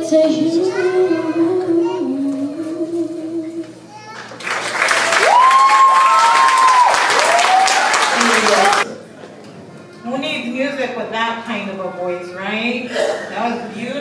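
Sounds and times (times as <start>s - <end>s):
person singing: 0.0s - 3.8s
audience applause: 4.3s - 8.9s
person cheering: 5.2s - 8.8s.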